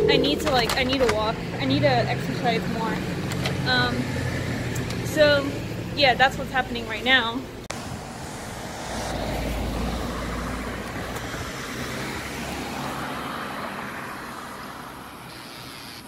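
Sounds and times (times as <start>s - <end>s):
cars driving past: 0.0s - 15.8s.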